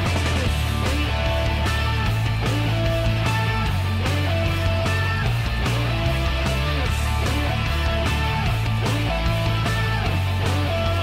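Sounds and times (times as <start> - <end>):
rock music with guitar and bass: 0.0 - 11.0.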